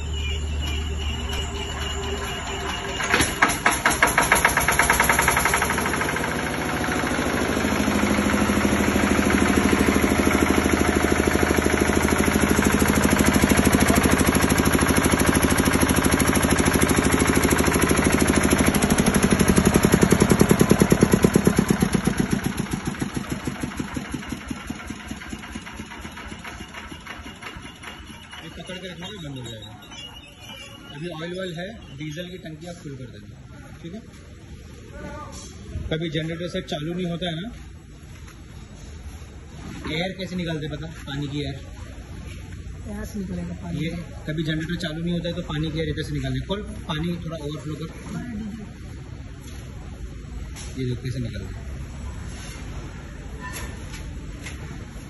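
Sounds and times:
diesel engine thudding: 0:00.0 - 0:30.9.

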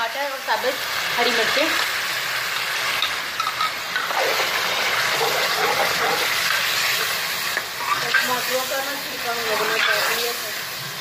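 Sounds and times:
chicken sizzling in hot ghee: 0:00.0 - 0:11.0
metal spatula stirring in pot: 0:03.0 - 0:08.6.

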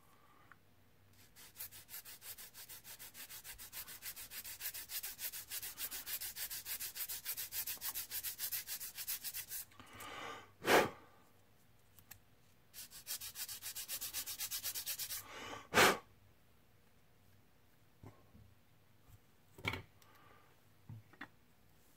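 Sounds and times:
sanding stick rubbing on plastic: 0:01.2 - 0:09.7, 0:12.8 - 0:15.2
puff of breath: 0:09.8 - 0:11.1, 0:15.2 - 0:16.0.

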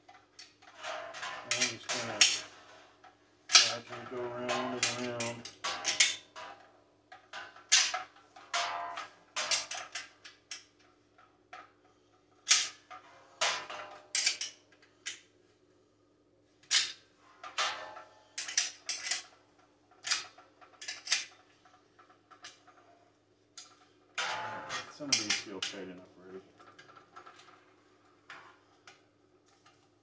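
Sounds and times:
wrench clinking on metal: 0:01.4 - 0:02.5.

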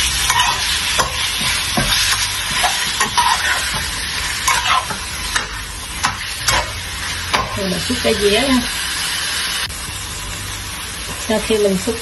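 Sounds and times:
metal spatula scraping pan: 0:00.0 - 0:08.2
beef sizzling in a wok: 0:00.0 - 0:12.0.

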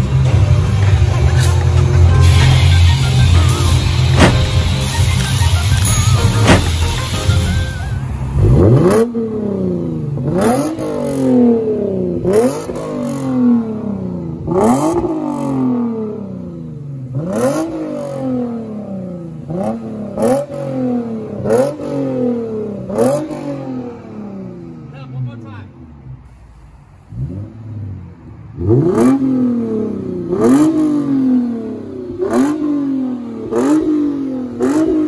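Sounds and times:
car engine revving in blips: 0:00.0 - 0:24.9, 0:27.0 - 0:35.0
music: 0:00.9 - 0:08.2.

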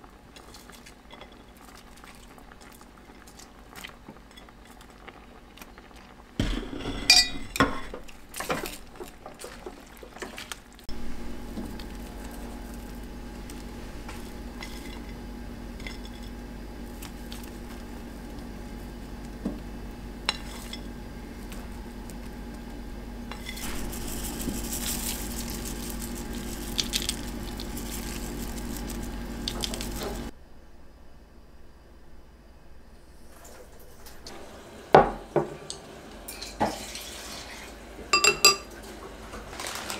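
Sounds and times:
pan simmering: 0:00.0 - 0:30.4, 0:32.9 - 0:39.9
dishes knocking and clinking: 0:06.4 - 0:09.4, 0:38.1 - 0:38.7
low hum: 0:10.9 - 0:34.2.

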